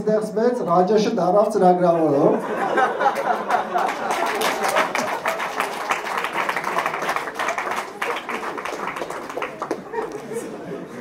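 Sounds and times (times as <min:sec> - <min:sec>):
chatter: 0:01.9 - 0:11.0
laughter: 0:02.1 - 0:04.8, 0:09.7 - 0:11.0
audience applauding: 0:03.0 - 0:10.6.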